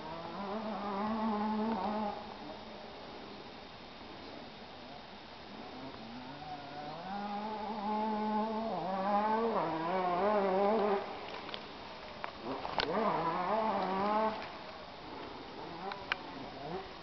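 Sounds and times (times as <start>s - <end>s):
flying insect buzzing: 0.0s - 2.4s, 5.5s - 11.6s, 12.3s - 17.0s.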